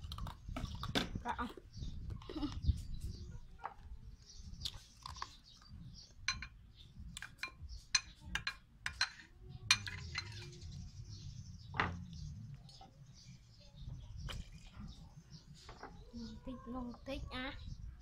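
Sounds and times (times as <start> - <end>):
spoon clinking against bowls: 6.2 - 6.6, 7.2 - 10.6.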